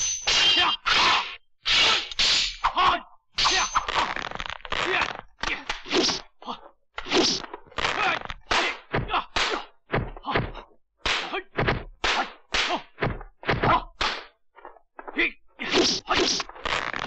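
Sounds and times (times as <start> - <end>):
punch and kick impacts: 7.1 - 14.3.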